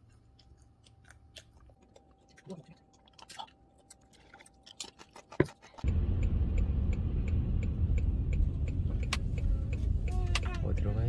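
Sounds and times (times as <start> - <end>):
traffic rumble on wet street: 5.9 - 11.0.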